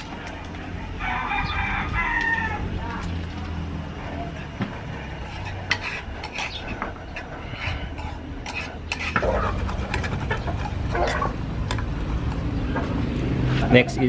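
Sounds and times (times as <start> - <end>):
metal spoon scraping a pan: 4.3 - 11.4.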